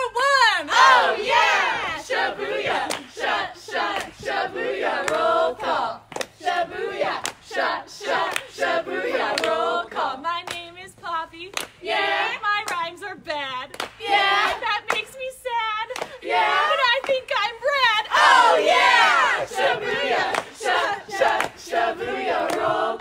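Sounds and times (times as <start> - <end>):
women chanting call-and-response: 0.0 - 23.0
hand claps: 2.8 - 3.1, 3.9 - 4.2, 5.0 - 6.4, 8.2 - 8.5, 9.3 - 9.6, 10.4 - 10.7, 11.5 - 11.8, 12.6 - 12.9, 13.7 - 15.2, 15.9 - 16.2, 16.8 - 17.4, 20.2 - 21.7, 22.4 - 22.7.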